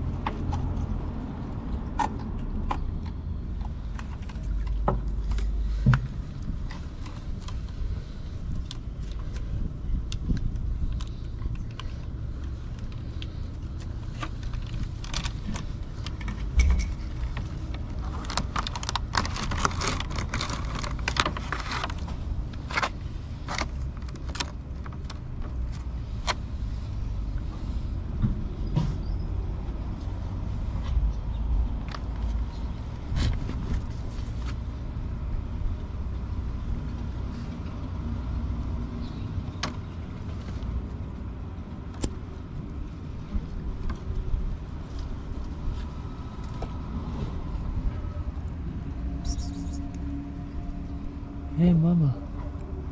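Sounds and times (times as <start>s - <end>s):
steady low rumble: 0.0s - 36.9s.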